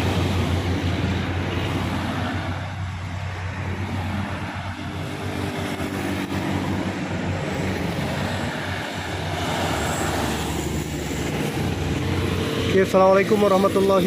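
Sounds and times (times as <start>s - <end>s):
cars passing: 0.0s - 14.0s
small truck passing: 0.0s - 14.0s
motorcycle passing: 4.0s - 14.0s.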